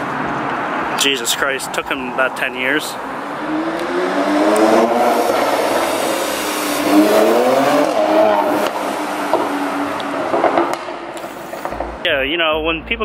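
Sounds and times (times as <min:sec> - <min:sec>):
car engine accelerating past: 0:03.0 - 0:12.1.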